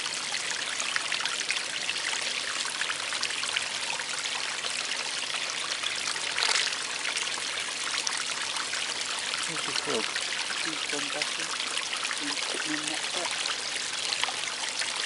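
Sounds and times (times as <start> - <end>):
water trickling over stones: 0.0 - 15.0
water splash: 6.3 - 6.9.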